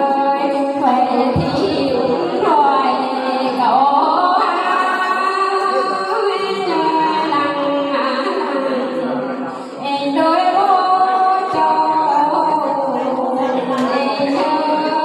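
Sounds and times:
woman singing unaccompanied: 0:00.0 - 0:09.2, 0:09.8 - 0:15.0.

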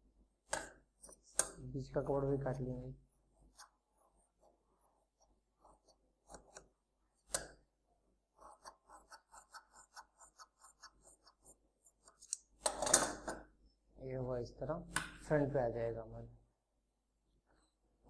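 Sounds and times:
scissors cutting fabric: 0:08.4 - 0:12.8.

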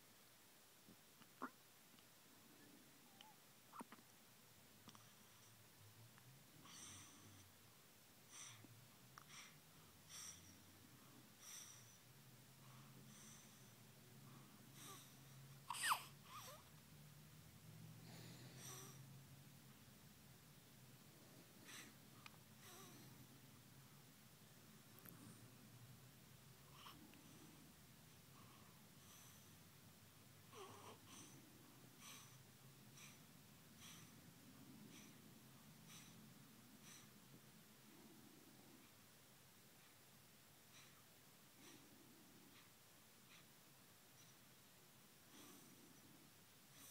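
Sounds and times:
baby squeak: 0:15.7 - 0:16.5.

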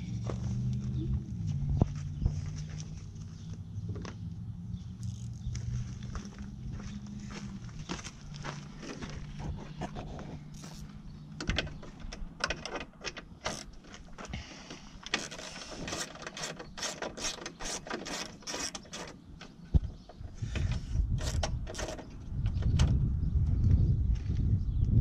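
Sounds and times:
hand ratchet clicking: 0:15.1 - 0:19.1.

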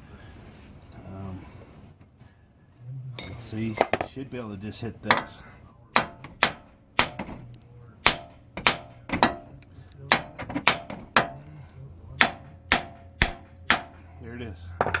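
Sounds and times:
hammer striking steel: 0:05.1 - 0:11.5, 0:12.1 - 0:14.2.

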